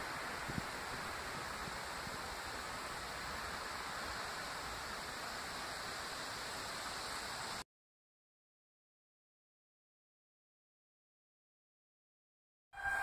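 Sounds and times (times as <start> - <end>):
rustling vegetation: 0.0 - 7.6
wind: 0.0 - 7.6.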